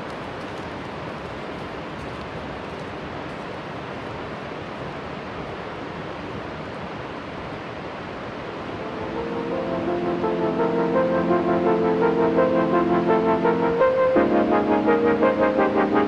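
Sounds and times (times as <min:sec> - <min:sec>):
river water rushing: 0:00.3 - 0:15.8
music: 0:08.7 - 0:16.0.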